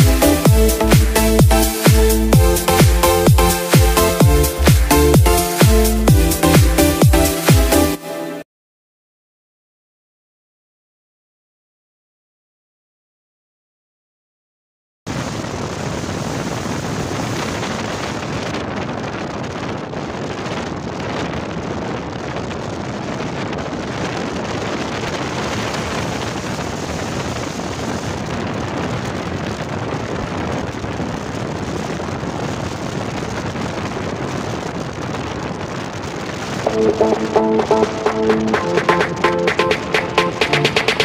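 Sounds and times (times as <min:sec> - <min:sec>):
music: 0:00.0 - 0:08.5, 0:36.6 - 0:41.0
wind rushing on microphone: 0:15.1 - 0:39.2.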